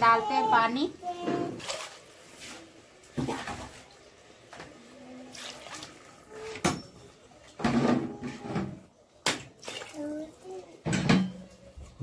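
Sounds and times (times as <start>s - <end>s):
water pouring and splashing: 1.1s - 6.7s, 9.4s - 10.7s.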